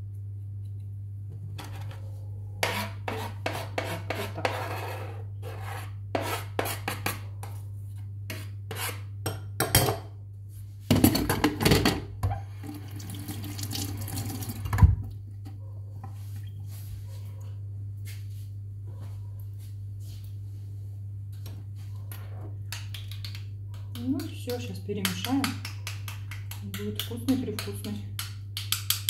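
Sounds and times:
knife scraping cutting board: 2.6s - 7.2s, 8.3s - 9.1s.

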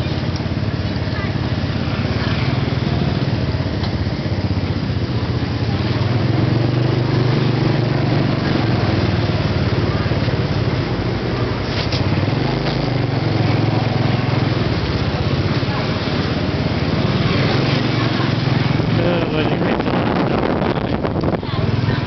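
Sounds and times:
road and wind noise: 0.0s - 22.0s
small motorcycle engine running: 0.0s - 22.0s.

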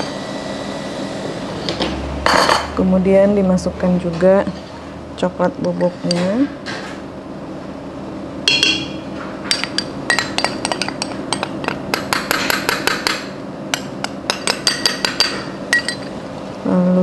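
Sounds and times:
metal spoon clinking on ceramic bowl: 8.5s - 16.2s.

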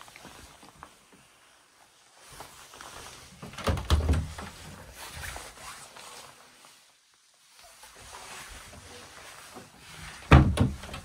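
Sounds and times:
faint rustling of movement: 0.0s - 11.0s
wooden door thumps: 10.3s - 11.0s.

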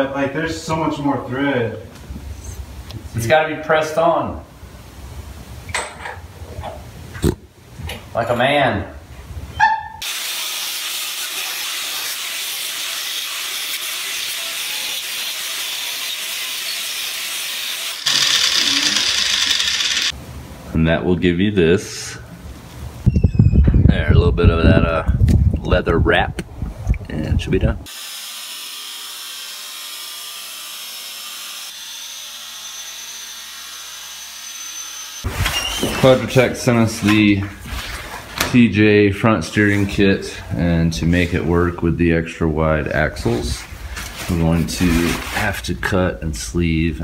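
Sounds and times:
angle grinder grinding metal: 10.3s - 20.1s, 27.9s - 35.3s.

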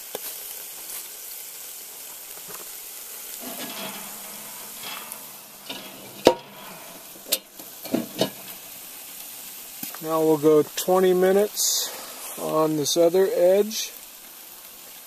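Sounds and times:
meat sizzling over charcoal: 0.0s - 15.0s.

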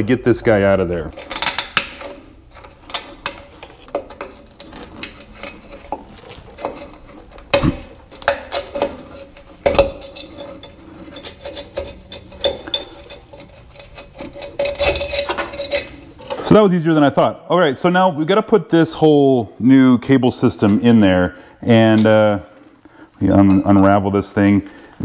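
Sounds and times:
metal clinking and scraping: 0.5s - 16.7s.

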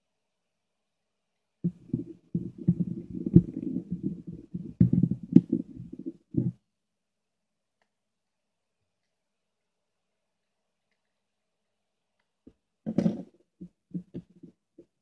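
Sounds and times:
plastic case rubbing and knocking: 1.7s - 6.6s, 12.9s - 14.9s.

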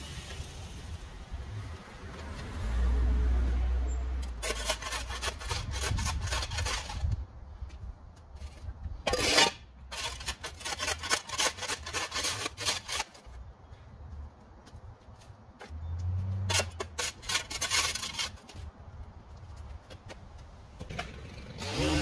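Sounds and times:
scraping strokes: 4.2s - 7.2s, 8.4s - 13.5s, 16.3s - 18.7s.

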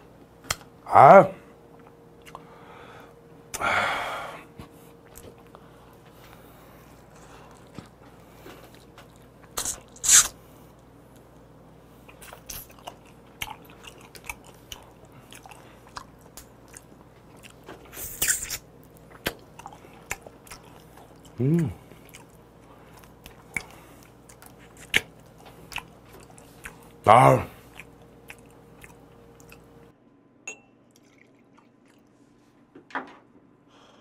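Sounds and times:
man chewing with wet clicks: 1.7s - 2.5s, 5.0s - 29.9s, 30.9s - 32.2s.

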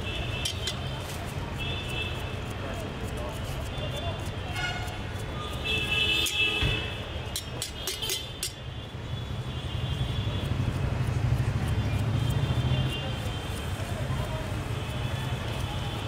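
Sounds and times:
street traffic rumble: 0.0s - 16.0s
knife clicking on metal tin: 0.4s - 0.9s, 7.3s - 8.6s.

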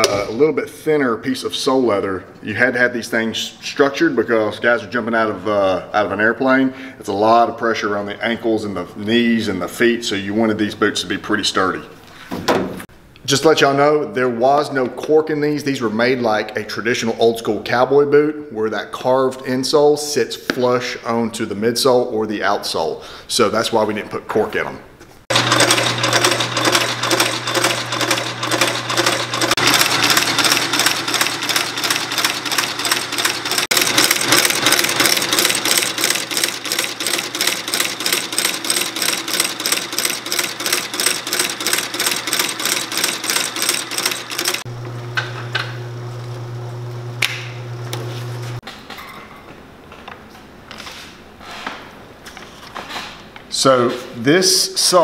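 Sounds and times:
stitching machine stitch strokes: 25.3s - 44.7s
motor humming: 25.3s - 48.6s.

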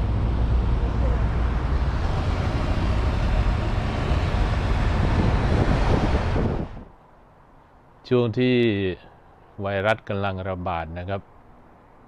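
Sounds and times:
car driving in traffic: 0.0s - 7.9s.

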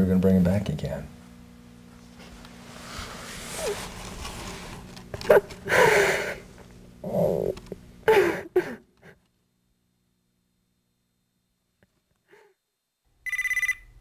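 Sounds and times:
person sobbing with wails: 5.3s - 9.2s.

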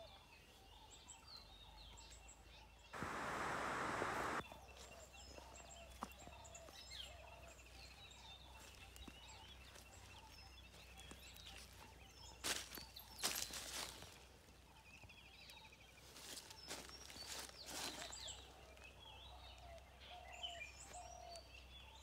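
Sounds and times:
birds chirping faintly: 0.0s - 22.0s
footsteps on dry leaves: 9.7s - 14.3s, 16.0s - 18.5s.

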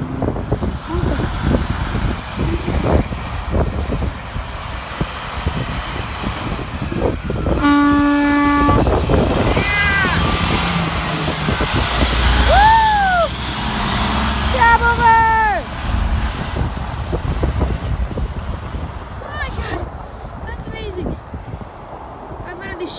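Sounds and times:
truck horn: 7.5s - 9.0s.

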